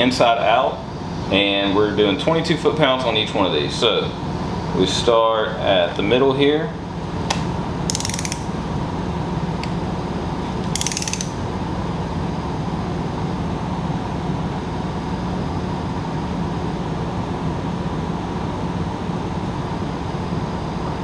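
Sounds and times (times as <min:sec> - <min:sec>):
torque wrench click: 0:07.9 - 0:08.5, 0:10.6 - 0:11.4
wrench ratcheting: 0:07.9 - 0:08.5, 0:10.6 - 0:11.4.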